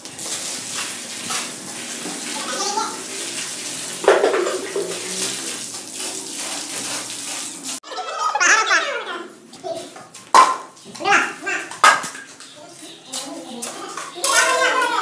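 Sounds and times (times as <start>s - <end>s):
water splashing onto sand and stone: 0.0s - 7.8s.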